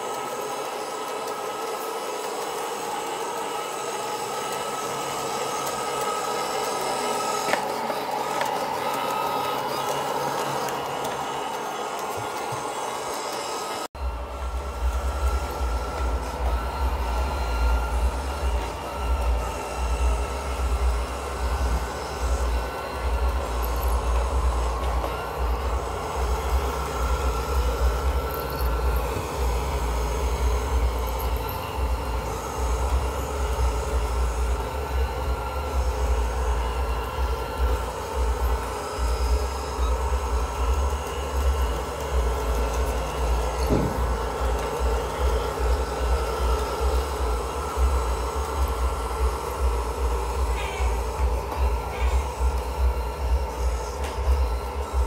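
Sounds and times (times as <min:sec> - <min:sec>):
robot cleaner motor whir: 0:00.0 - 0:55.0
wheels rumbling on tile floor: 0:13.9 - 0:55.0.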